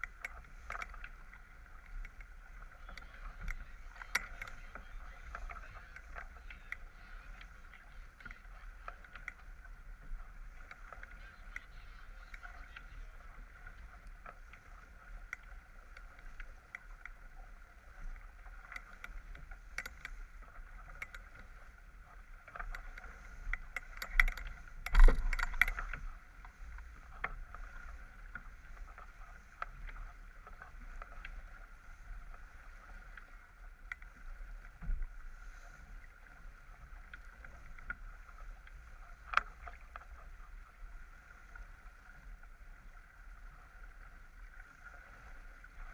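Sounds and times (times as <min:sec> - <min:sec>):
boat knocks and ticks: 0:00.0 - 0:45.9
water rushing along a hull: 0:00.0 - 0:45.9
wind rumbling on microphone: 0:00.0 - 0:45.9.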